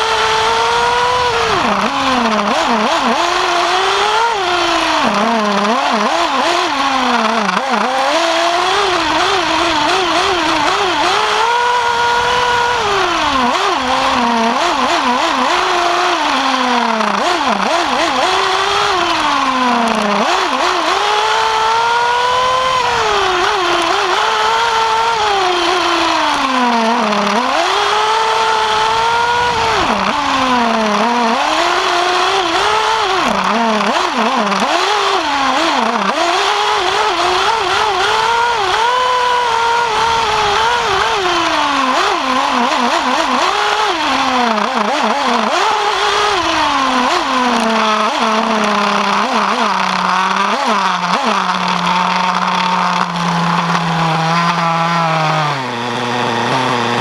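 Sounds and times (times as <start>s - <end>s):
nitro engine revving: 0.0s - 57.0s.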